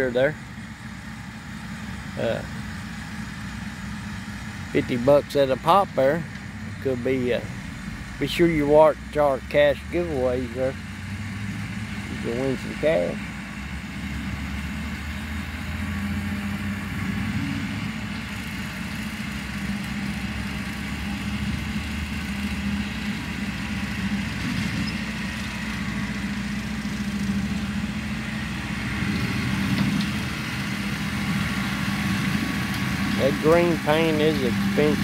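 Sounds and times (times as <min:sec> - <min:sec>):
tractor diesel engine running: 0:00.0 - 0:35.0.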